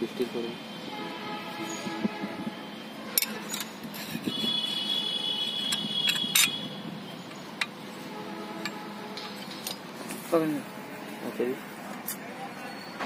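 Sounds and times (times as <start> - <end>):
metal clutch plates clinking: 5.6 - 6.7.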